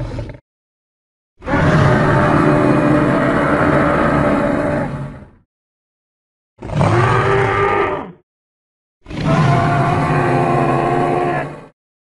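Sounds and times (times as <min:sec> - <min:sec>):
dinosaur roar: 0:01.4 - 0:05.4, 0:06.6 - 0:08.2, 0:09.1 - 0:11.8.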